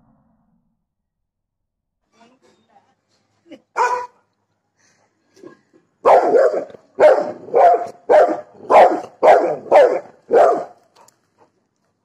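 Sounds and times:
dog barking loudly: 3.8s - 4.2s, 6.0s - 10.8s.

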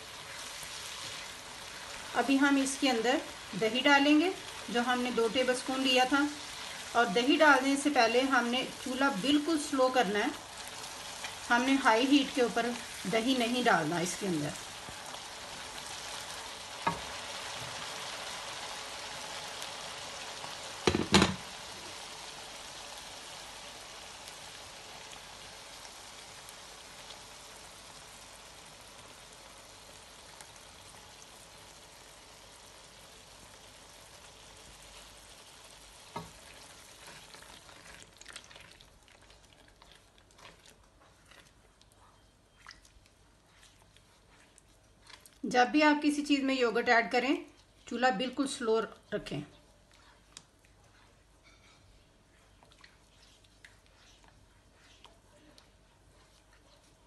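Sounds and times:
paste sizzling in oil: 0.0s - 48.9s, 49.6s - 57.0s
loud knock: 20.8s - 21.4s.

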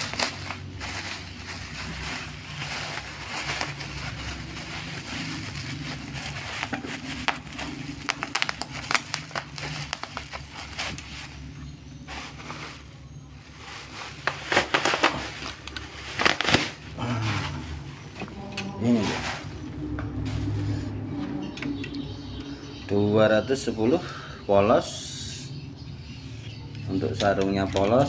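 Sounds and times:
bubble wrap crinkling and crackling: 0.0s - 20.9s.

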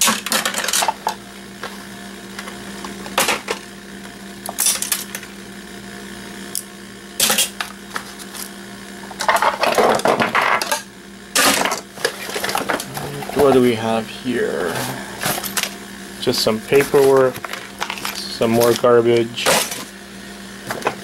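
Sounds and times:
plastic parts and tools clattering: 0.0s - 1.2s, 9.2s - 10.8s, 11.4s - 13.0s, 16.8s - 19.9s
steady low hum: 0.0s - 21.0s.

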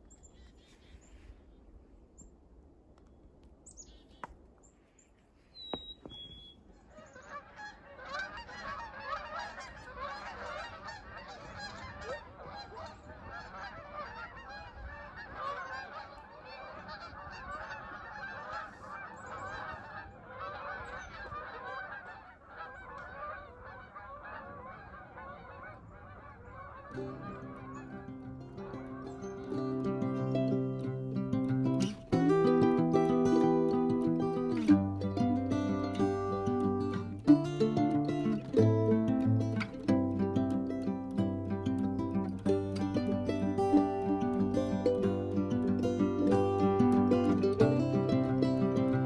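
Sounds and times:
geese honking: 5.6s - 49.0s
guitar music: 27.0s - 49.0s.

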